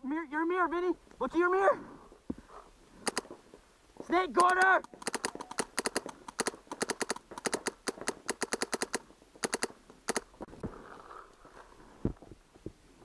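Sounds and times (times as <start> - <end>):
paintball marker rapid firing: 4.4 - 10.2.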